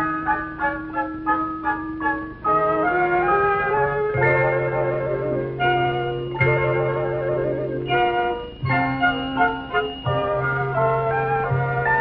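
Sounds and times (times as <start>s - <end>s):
background music: 0.0s - 12.0s.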